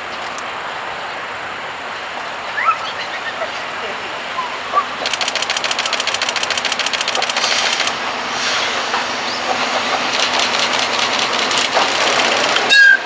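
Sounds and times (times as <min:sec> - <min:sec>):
train wheels rolling on rails: 0:04.9 - 0:13.0
rapid high ticking: 0:05.0 - 0:08.0, 0:10.0 - 0:12.7.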